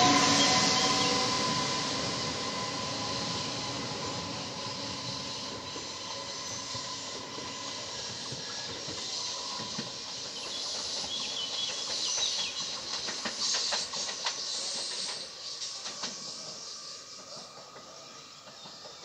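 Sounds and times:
train motor whine and hiss: 0:00.0 - 0:19.0
train wheel clicks over rail joints: 0:07.4 - 0:16.6.

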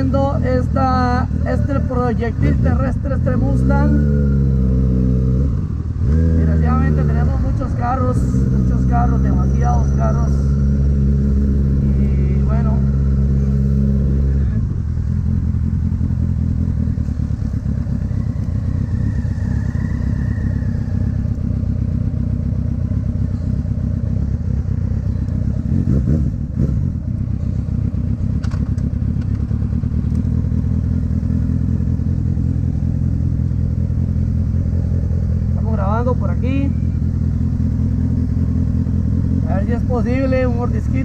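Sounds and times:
motorcycle engine running: 0:00.0 - 0:41.0.

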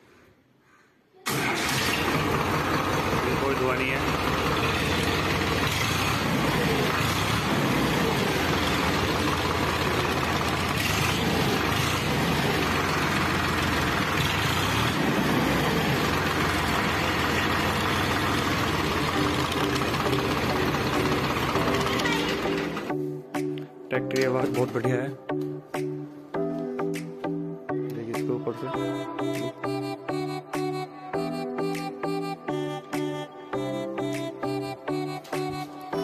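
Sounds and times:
tractor diesel engine running: 0:01.3 - 0:22.9.

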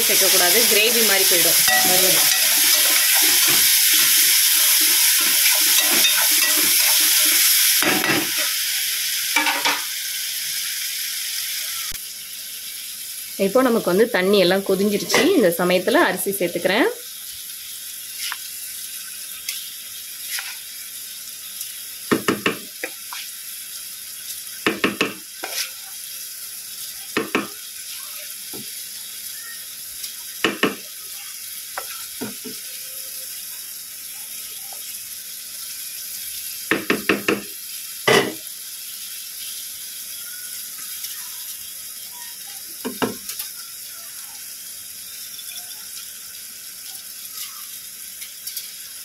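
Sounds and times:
food sizzling in a pan: 0:00.0 - 0:49.0
spoon clinking and scraping pot: 0:01.6 - 0:08.4, 0:24.8 - 0:25.8.

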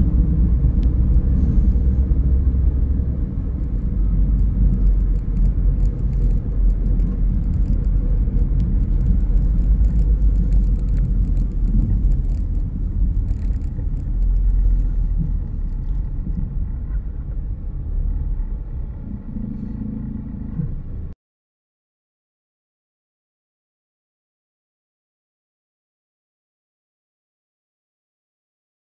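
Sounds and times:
car road and engine rumble: 0:00.0 - 0:21.2.

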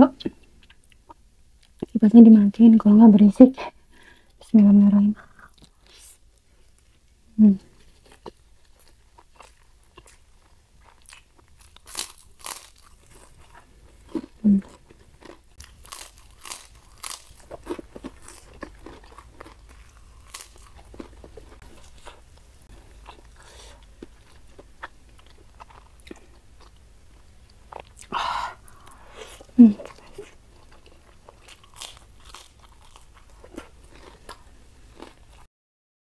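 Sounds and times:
crunching crispy cracker: 0:07.9 - 0:22.2, 0:29.9 - 0:35.4
wet chewing: 0:08.0 - 0:22.3.

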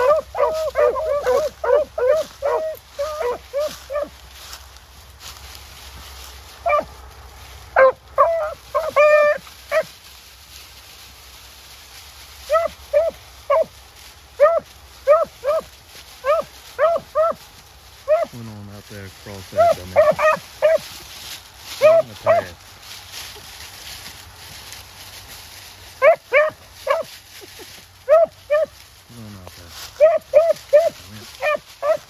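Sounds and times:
hound howling: 0:00.0 - 0:04.1, 0:06.6 - 0:06.9, 0:07.8 - 0:09.9, 0:12.5 - 0:13.7, 0:14.4 - 0:17.4, 0:18.1 - 0:18.4, 0:19.5 - 0:20.8, 0:21.8 - 0:22.5, 0:28.1 - 0:28.7, 0:30.0 - 0:32.0
hounds baying: 0:00.0 - 0:04.6, 0:06.5 - 0:10.0, 0:12.4 - 0:22.7, 0:25.9 - 0:32.0.

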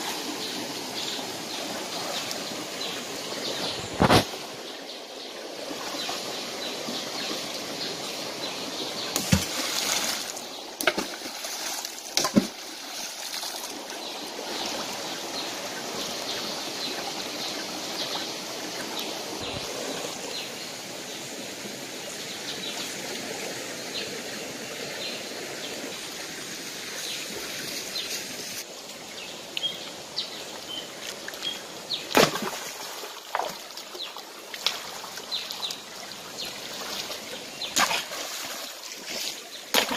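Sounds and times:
shallow rocky stream running: 0:00.0 - 0:39.9
splashes and knocks in water: 0:09.1 - 0:13.9, 0:32.1 - 0:35.0, 0:36.8 - 0:39.9.

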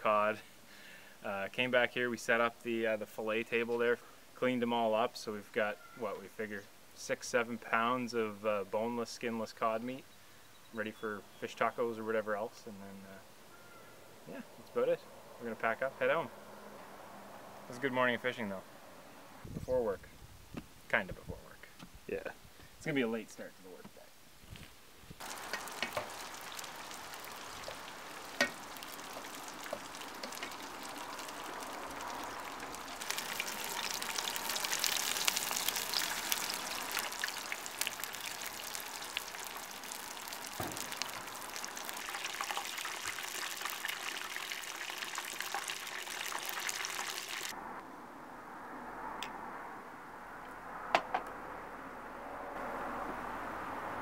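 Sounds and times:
fish deep-frying in hot oil: 0:25.2 - 0:47.6.

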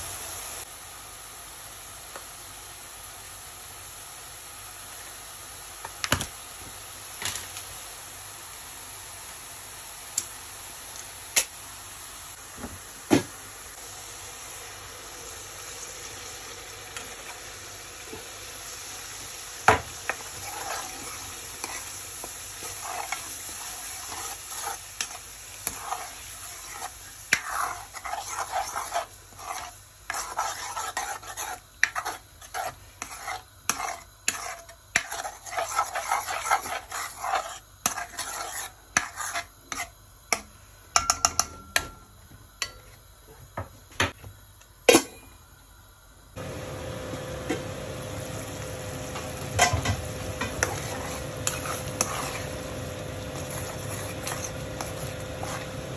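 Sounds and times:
food sizzling in oil: 0:00.0 - 0:43.2, 0:46.4 - 0:55.9
spatula scraping pan: 0:19.7 - 0:40.4, 0:49.6 - 0:55.9.

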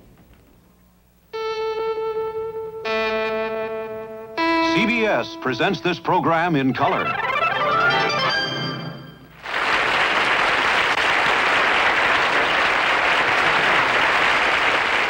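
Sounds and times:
short music cue: 0:04.4 - 0:09.3
audience applauding: 0:09.3 - 0:15.0.

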